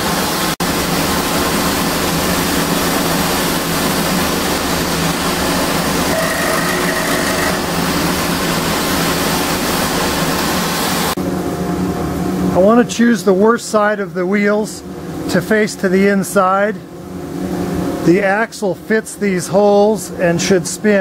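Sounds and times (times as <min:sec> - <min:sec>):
band saw cutting wood: 0:02.8 - 0:11.2.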